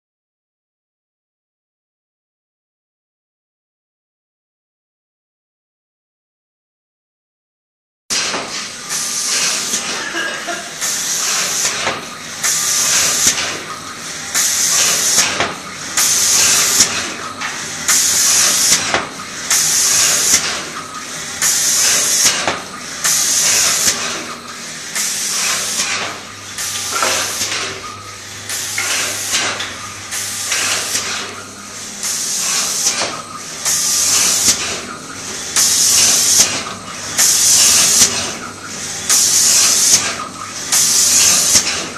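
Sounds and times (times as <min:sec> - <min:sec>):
spray guns hissing in bursts: 0:16.0 - 0:20.5, 0:21.4 - 0:24.2, 0:33.6 - 0:41.9.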